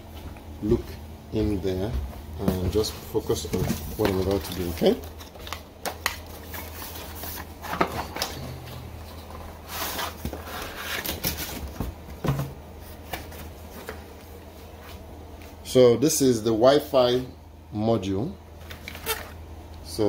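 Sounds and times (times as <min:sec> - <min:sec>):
steady low hum: 0:00.0 - 0:20.0
packaging rustling and clicking: 0:03.5 - 0:08.4.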